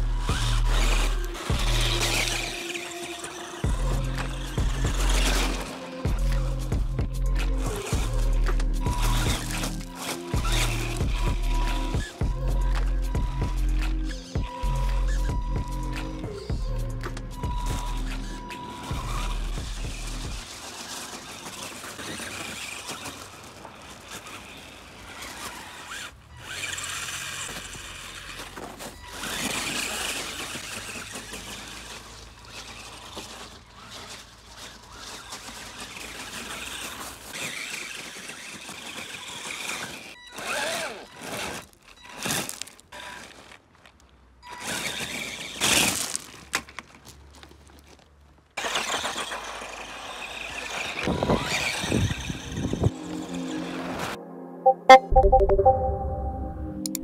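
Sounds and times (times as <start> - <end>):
tyres churning through snow: 0.0 - 16.5, 17.4 - 46.5, 48.6 - 54.2
rc car motor whining: 0.0 - 43.6, 44.4 - 46.3, 48.6 - 53.0
tyres crunching on stones: 0.5 - 15.2, 41.1 - 49.1.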